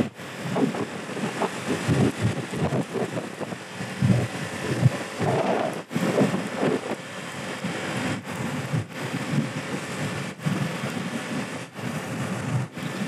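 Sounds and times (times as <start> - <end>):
road noise: 0.0 - 13.0
wind buffeting microphone: 0.0 - 13.0.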